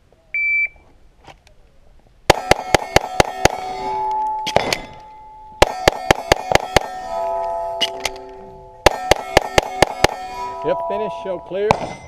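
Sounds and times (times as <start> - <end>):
rapid pistol fire: 2.3 - 3.7, 5.6 - 7.0, 8.8 - 10.2
steel targets ringing: 2.3 - 12.0.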